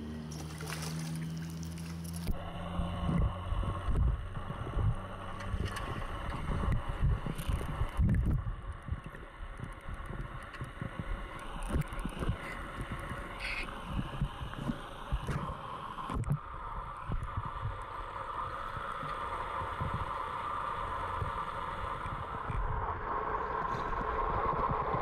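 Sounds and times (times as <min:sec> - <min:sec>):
water sloshing: 0:00.3 - 0:02.4.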